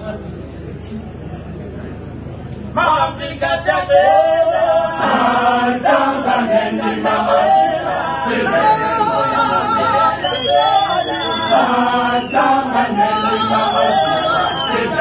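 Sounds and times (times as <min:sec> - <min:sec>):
male choir singing a cappella: 0:03.2 - 0:15.0.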